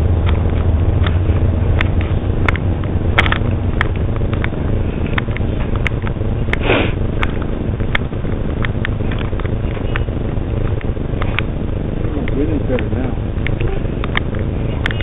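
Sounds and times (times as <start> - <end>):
low microphone rumble: 0.0 - 15.0
short sniff: 6.6 - 7.0.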